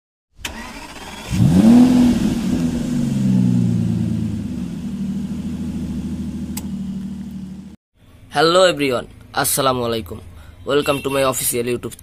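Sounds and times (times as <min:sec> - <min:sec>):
car engine revving and idling: 0:00.6 - 0:07.8.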